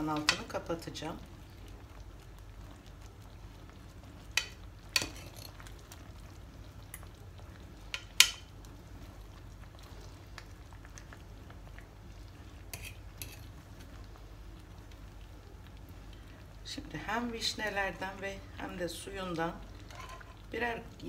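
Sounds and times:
low background noise: 0.0s - 21.0s
metal cutlery clinking on pot: 4.4s - 5.6s, 7.9s - 8.5s, 12.7s - 13.5s, 19.9s - 20.4s.

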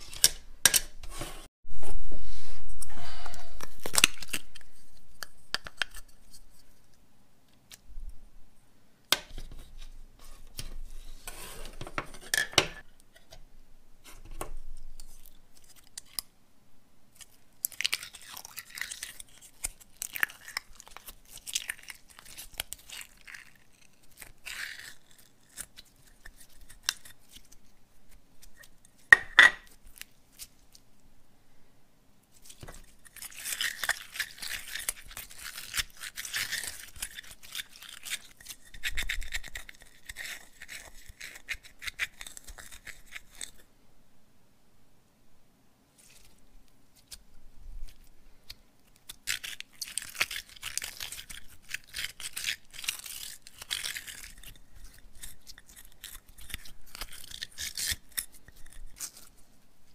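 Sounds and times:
crinkly toy handling noises: 3.5s - 7.0s, 17.1s - 31.1s, 32.2s - 43.7s, 45.9s - 59.9s.

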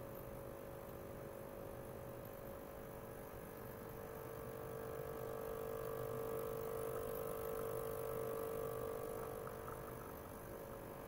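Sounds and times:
ultrasonic cleaner humming: 4.0s - 11.0s.

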